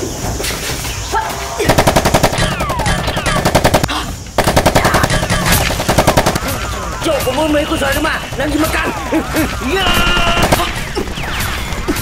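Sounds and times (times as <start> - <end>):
machine-gun fire: 1.6 - 12.0
falling whistling tones: 6.4 - 12.0.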